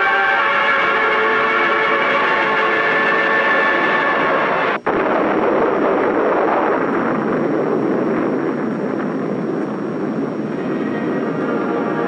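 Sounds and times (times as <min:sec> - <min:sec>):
rumbling explosion blast: 0:01.2 - 0:12.0.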